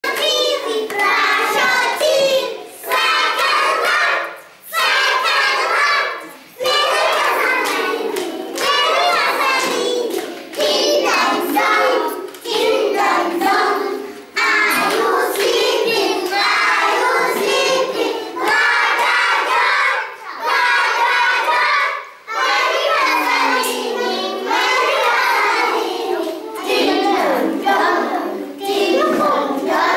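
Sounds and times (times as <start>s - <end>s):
children singing in unison: 0.0s - 29.9s.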